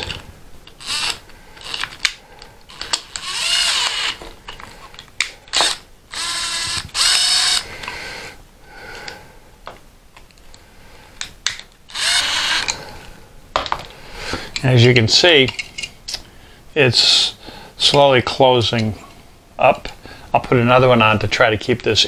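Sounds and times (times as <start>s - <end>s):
cordless drill motor whine: 0.8s - 2.0s, 2.7s - 4.2s, 5.5s - 7.8s, 11.9s - 12.9s.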